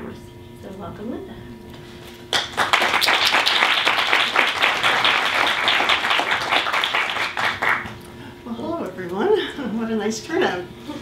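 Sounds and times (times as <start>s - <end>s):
audience applauding: 2.3s - 8.0s.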